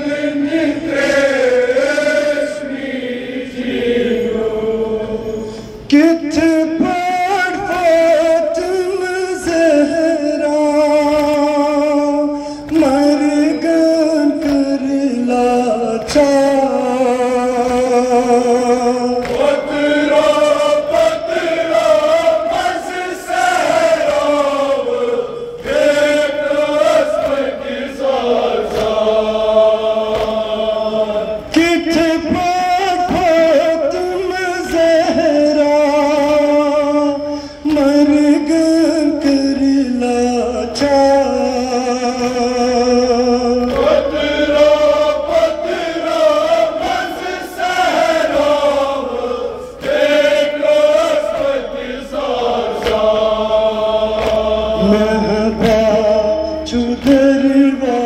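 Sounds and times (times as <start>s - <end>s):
group of men chanting: 0.0s - 5.5s, 12.7s - 58.0s
man singing into a microphone: 4.8s - 20.9s, 30.8s - 45.7s, 54.8s - 58.0s.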